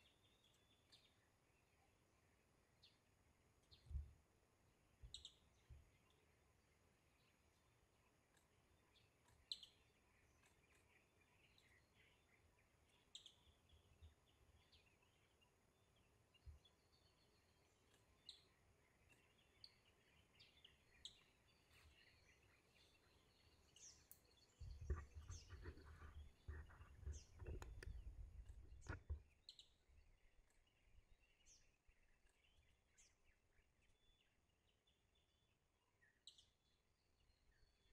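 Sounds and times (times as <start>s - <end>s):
faint forest ambience: 0.0s - 37.9s
low rumbling with crackles: 24.6s - 29.3s.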